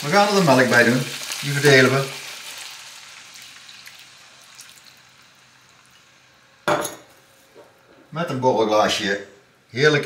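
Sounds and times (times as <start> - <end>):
milk sizzling in a frying pan: 0.0 - 7.9.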